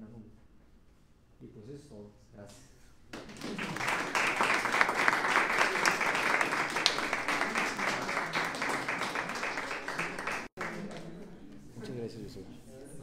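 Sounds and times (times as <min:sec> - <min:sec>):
audience applauding: 0:03.2 - 0:11.1.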